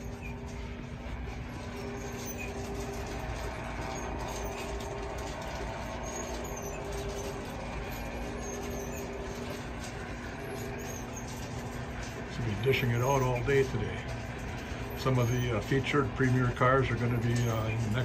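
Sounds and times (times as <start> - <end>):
steady mechanical hum: 0.0 - 18.0.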